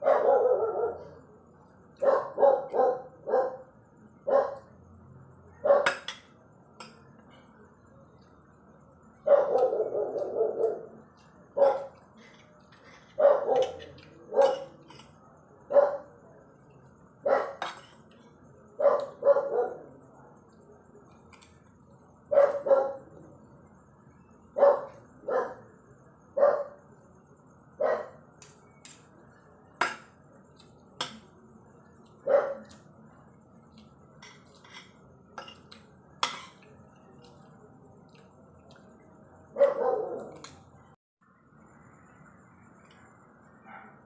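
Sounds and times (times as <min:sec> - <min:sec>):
dog barking: 0:00.0 - 0:01.2, 0:02.0 - 0:04.7, 0:05.6 - 0:06.0, 0:09.2 - 0:10.9, 0:11.6 - 0:12.0, 0:13.2 - 0:14.8, 0:15.7 - 0:16.1, 0:17.2 - 0:17.6, 0:18.8 - 0:19.9, 0:22.3 - 0:23.1, 0:24.6 - 0:25.7, 0:26.4 - 0:26.8, 0:27.8 - 0:28.2, 0:32.2 - 0:32.7, 0:39.5 - 0:40.4, 0:43.6 - 0:44.0
cutlery clinking on plates: 0:11.6 - 0:15.2, 0:17.6 - 0:18.3, 0:33.7 - 0:37.5.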